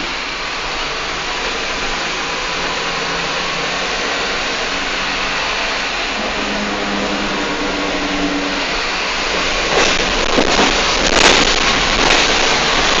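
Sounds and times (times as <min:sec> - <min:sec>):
bus road and engine noise: 0:00.0 - 0:13.0.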